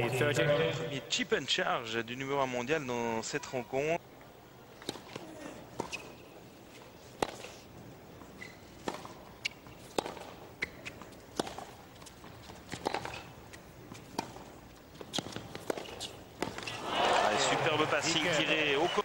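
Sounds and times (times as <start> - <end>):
shoe squeaks: 5.1 - 7.6, 8.2 - 11.2, 14.4 - 16.8
tennis ball being struck: 7.2 - 7.5, 8.8 - 11.8, 12.7 - 13.3, 14.1 - 16.7.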